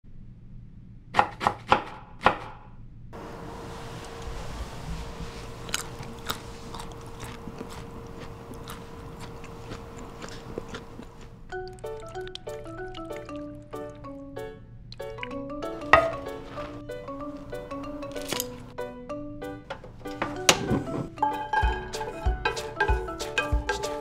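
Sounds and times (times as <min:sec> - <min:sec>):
faint steady hum: 0:02.8 - 0:18.7.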